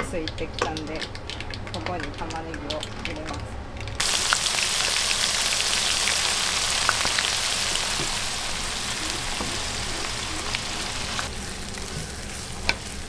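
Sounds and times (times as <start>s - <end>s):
onions sizzling in hot oil: 4.0s - 13.0s
wooden spatula stirring: 11.3s - 13.0s.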